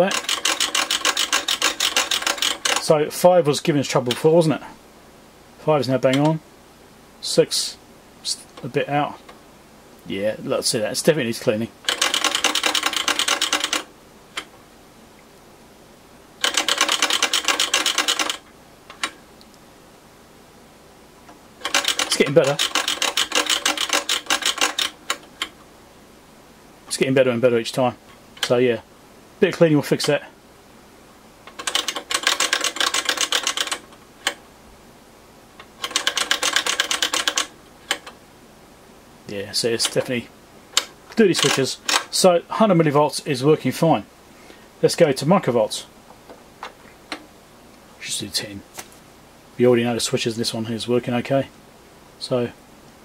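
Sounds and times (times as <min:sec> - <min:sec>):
rotary switch detent clicks: 0:35.6 - 0:38.2, 0:40.7 - 0:42.1.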